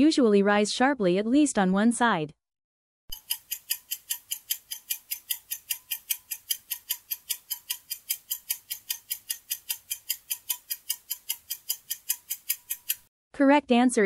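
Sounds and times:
clock ticking: 0:03.1 - 0:13.1.

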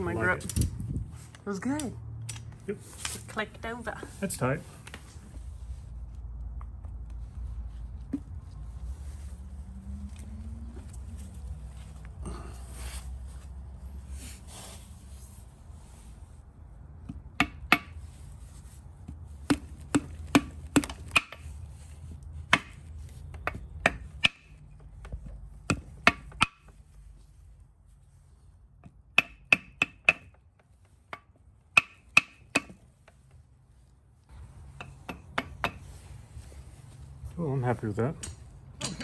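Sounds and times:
hammer tapping metal block: 0:29.1 - 0:30.3, 0:31.2 - 0:32.8.

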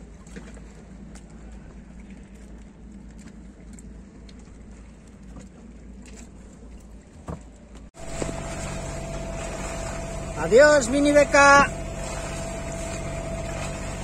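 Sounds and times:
constant whine: 0:00.0 - 0:14.0
wind and water noise: 0:00.0 - 0:14.0
engine drone: 0:08.0 - 0:14.0
low rumble: 0:08.0 - 0:14.0.

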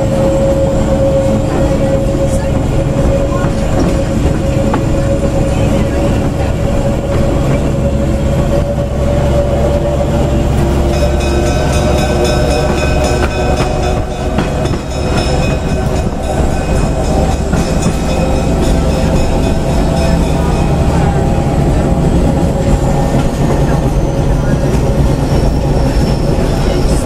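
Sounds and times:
high steady tones: 0:00.0 - 0:27.0
train rumbling along track: 0:00.0 - 0:27.0.

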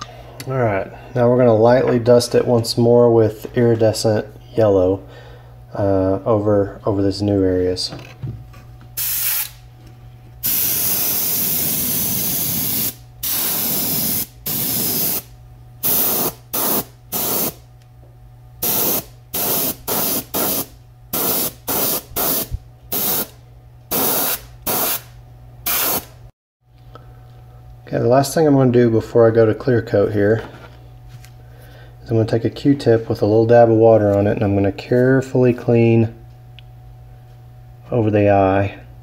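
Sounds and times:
steady low hum: 0:00.0 - 0:39.0
airbrush spraying hiss: 0:09.0 - 0:09.6, 0:10.4 - 0:17.6, 0:18.6 - 0:23.3, 0:23.9 - 0:25.1, 0:25.7 - 0:26.1.

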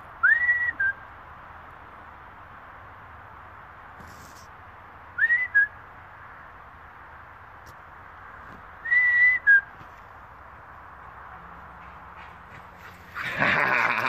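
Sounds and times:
person whistling: 0:00.2 - 0:01.0, 0:05.2 - 0:05.7, 0:08.8 - 0:09.7.

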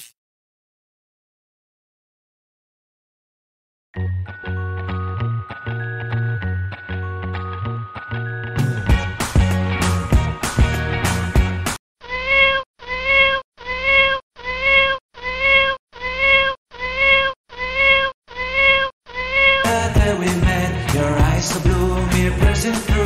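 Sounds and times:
background music: 0:04.0 - 0:11.7, 0:19.7 - 0:23.0
cat meowing: 0:12.0 - 0:19.7.

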